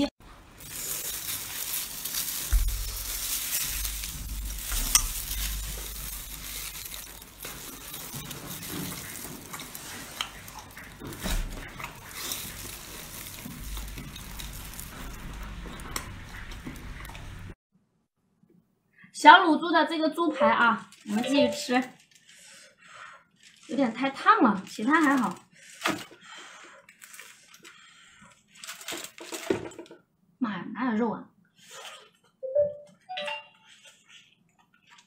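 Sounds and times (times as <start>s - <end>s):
plastic gloves crinkling: 0.2s - 17.5s, 20.6s - 29.9s
chewing crisp food: 0.5s - 17.4s.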